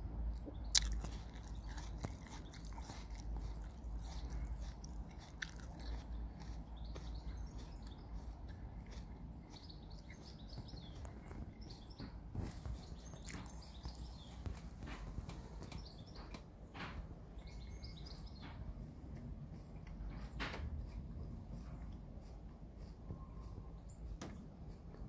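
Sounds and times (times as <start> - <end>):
steady low rumble: 0.0 - 25.0
bird chirps: 9.4 - 14.6, 17.4 - 18.6.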